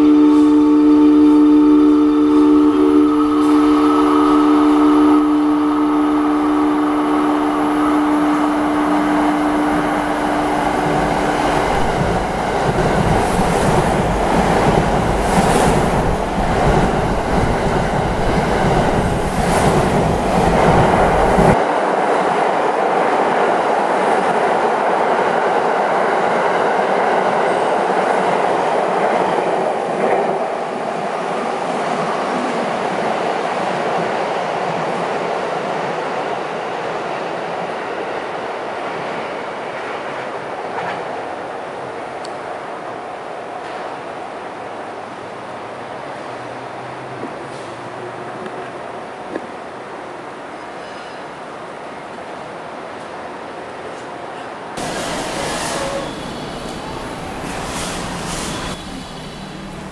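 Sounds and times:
train horn chord: 0.0s - 11.9s, 54.8s - 57.3s
train rushing past: 0.0s - 41.3s, 54.8s - 59.9s
wheels clacking on rail: 8.6s - 21.6s, 54.8s - 59.9s.

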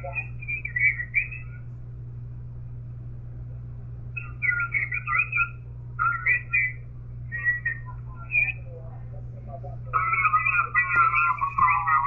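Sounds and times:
thin wavering radio voice: 0.0s - 1.6s, 4.2s - 12.0s
faint radio band noise: 0.0s - 12.0s
steady low hum: 0.0s - 12.0s.

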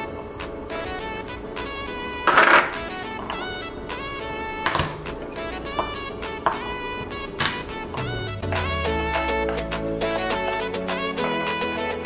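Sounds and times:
instrumental music: 0.0s - 12.0s
bass line: 7.9s - 12.0s.

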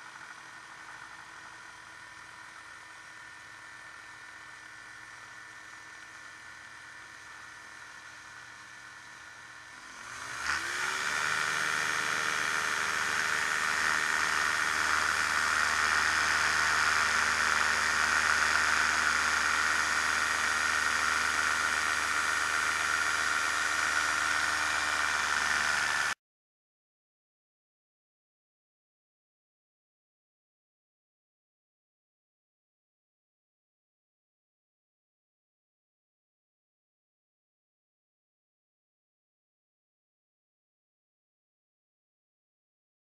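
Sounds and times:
ultralight aircraft engine: 0.0s - 26.2s.

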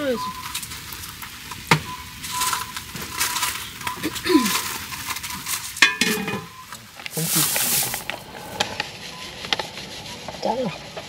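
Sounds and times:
pots and utensils clattering: 0.2s - 8.6s
ringing metal clink: 5.8s - 6.5s.

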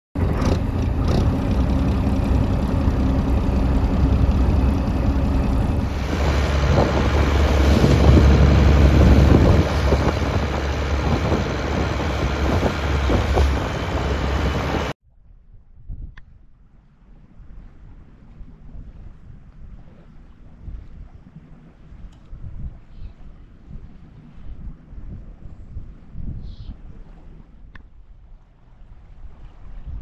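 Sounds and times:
boat engine running: 0.2s - 15.0s
rush of boat wake: 0.2s - 15.0s
wind noise: 0.2s - 28.1s.

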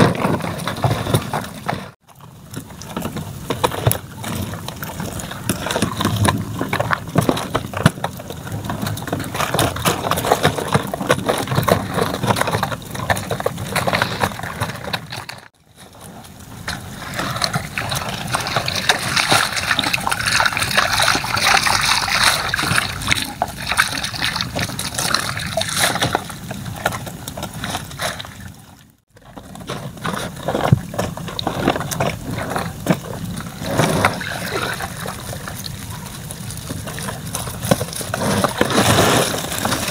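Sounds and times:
water sloshing and splashing: 16.2s - 39.9s.

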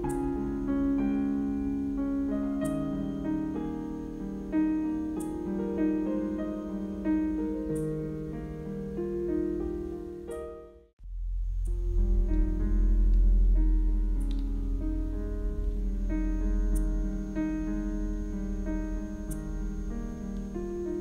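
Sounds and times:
slow piano music: 0.0s - 21.0s.

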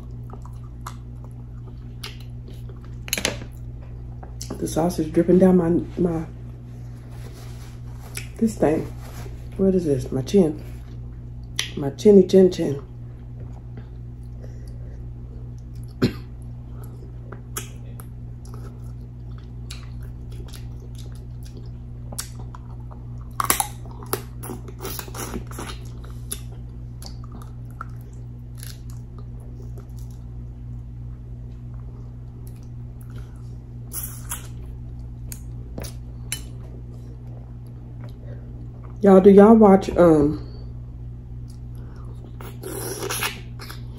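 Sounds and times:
chewing and lip-smacking: 0.0s - 4.6s, 16.7s - 39.0s, 41.4s - 43.9s
low hum: 0.0s - 43.9s.

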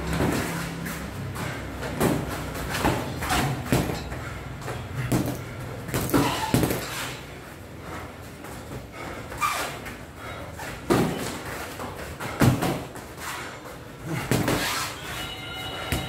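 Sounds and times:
boxing gloves punching: 0.0s - 7.2s, 10.6s - 13.2s, 14.0s - 15.1s.

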